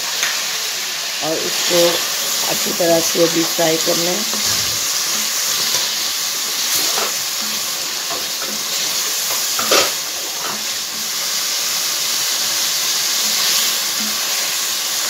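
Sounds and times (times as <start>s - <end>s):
chicken frying in oil: 0.0s - 15.0s
wooden spoon scraping pan: 4.2s - 11.4s.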